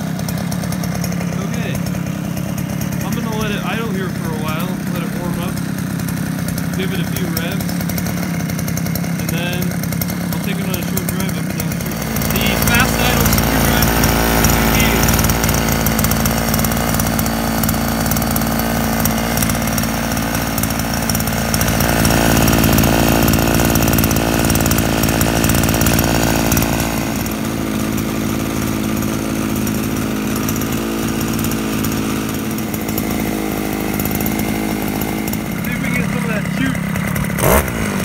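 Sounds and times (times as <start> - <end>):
scooter engine idling: 0.0 - 38.0.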